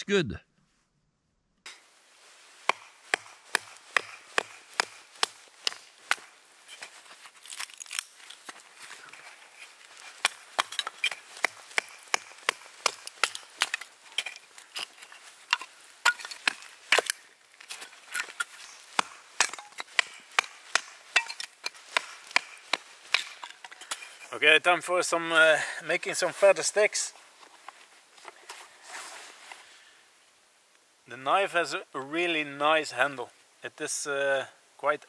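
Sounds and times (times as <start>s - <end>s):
wood cracking and splitting: 2.7s - 24.1s.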